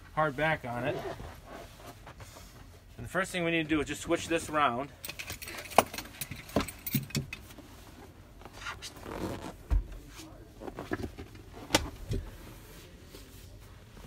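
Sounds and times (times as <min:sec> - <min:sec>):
cushion knocks and clicks: 0:10.7 - 0:12.3.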